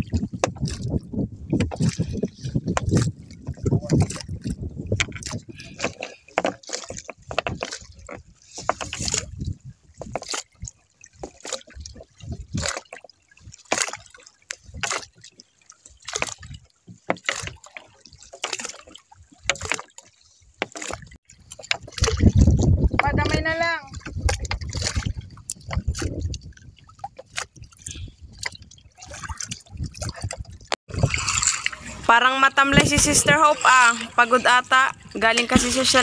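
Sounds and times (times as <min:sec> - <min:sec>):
water trickling and sloshing: 0:00.0 - 0:36.0
net splashing into water: 0:10.2 - 0:16.6, 0:21.7 - 0:22.6, 0:29.0 - 0:32.1.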